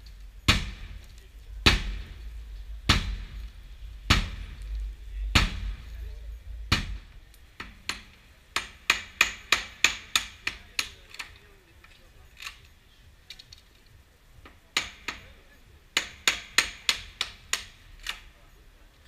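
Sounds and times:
hammer striking wooden frame: 0.5s - 3.5s, 4.1s - 5.9s, 6.7s - 11.3s, 14.4s - 15.3s, 15.9s - 18.2s.

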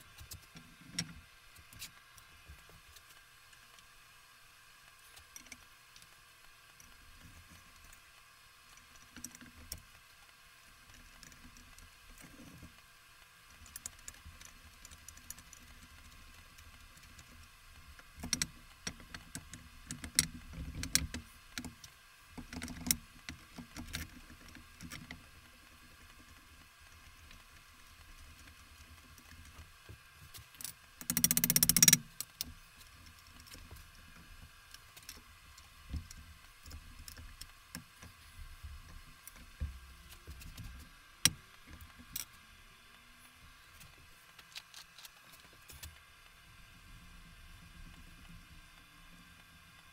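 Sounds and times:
small metal parts clicking: 30.3s - 33.6s.

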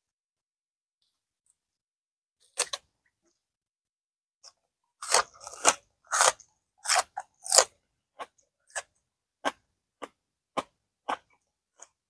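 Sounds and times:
crunching and chewing spring onion: 2.4s - 2.9s, 4.4s - 12.0s.

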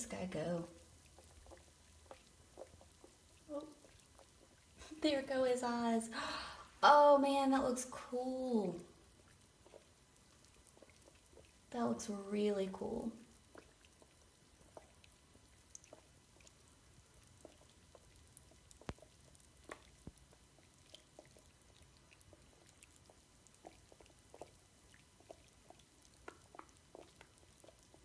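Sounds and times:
bath bomb fizzing: 0.0s - 28.0s.

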